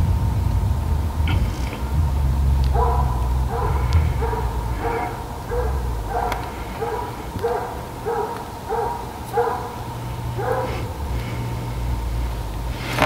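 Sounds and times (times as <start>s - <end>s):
hound barking: 2.6s - 12.0s.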